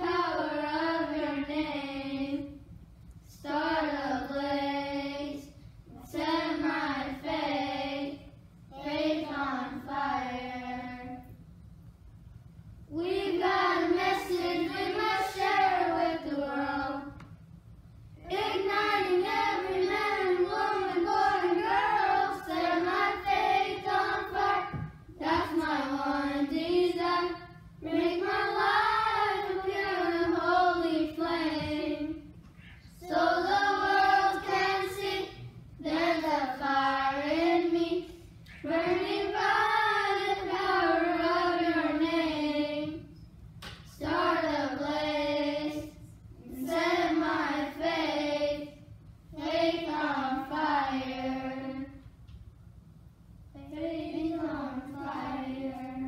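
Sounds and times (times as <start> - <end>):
children singing unaccompanied: 0.0 - 2.5, 12.9 - 17.3, 18.2 - 32.3, 32.9 - 43.1, 44.0 - 48.8, 53.6 - 56.0.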